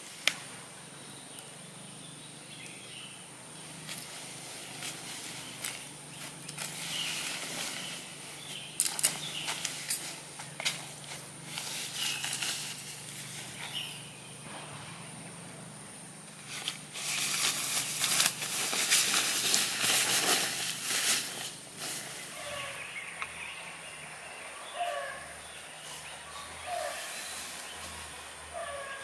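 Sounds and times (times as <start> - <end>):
nylon tent fabric rustling: 3.6 - 14.2, 16.4 - 23.2.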